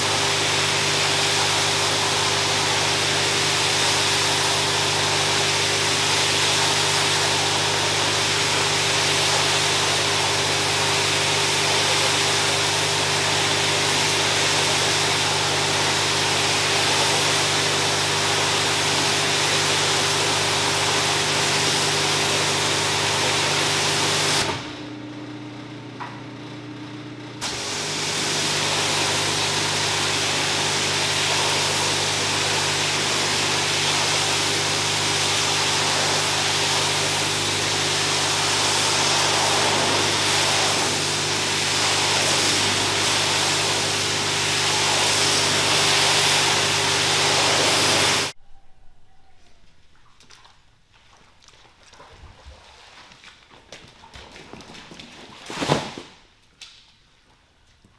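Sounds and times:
pressure washer spray hissing: 0.0 - 24.6, 27.4 - 48.4
pump humming: 0.0 - 48.4.

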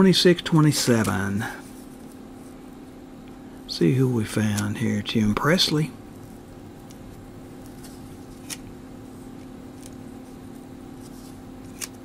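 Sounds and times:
low room hum: 0.0 - 12.0
cards shuffled in hands: 0.8 - 2.6, 6.2 - 12.0
card clicking: 7.6 - 8.8, 11.6 - 12.0.

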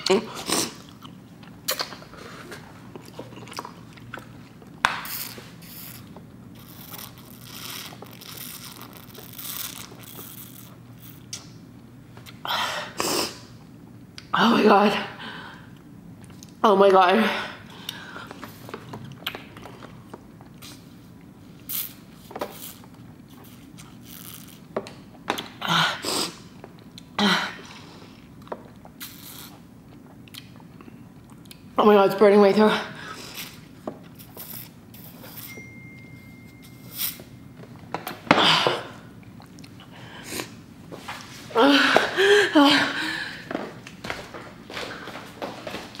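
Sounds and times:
short hissing sounds: 5.0 - 8.7.

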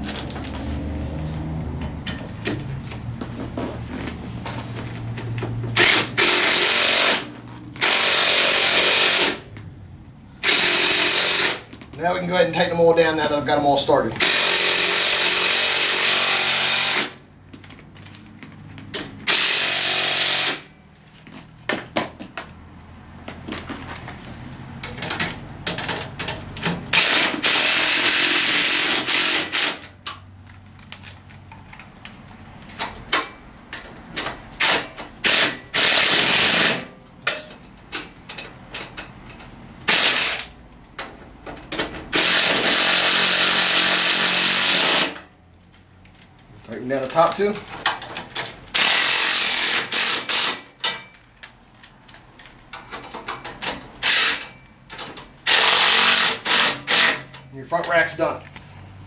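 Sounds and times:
cordless impact driver bursts: 5.8 - 9.4, 10.4 - 11.7, 14.2 - 17.2, 19.2 - 20.7, 26.9 - 29.8, 34.6 - 36.9, 39.9 - 40.5, 42.1 - 45.2, 48.7 - 50.7, 54.0 - 54.5, 55.4 - 57.3.

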